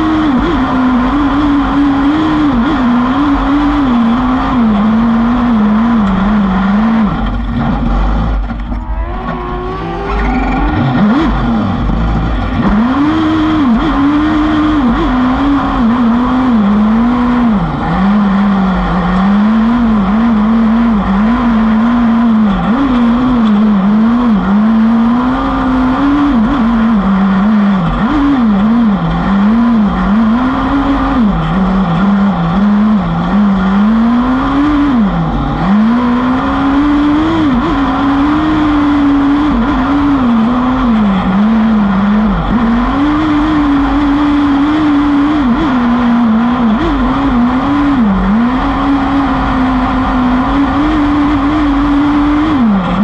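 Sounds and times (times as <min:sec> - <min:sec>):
buggy engine revving: 0:00.0 - 0:53.0
steady rush of noise: 0:04.0 - 0:53.0.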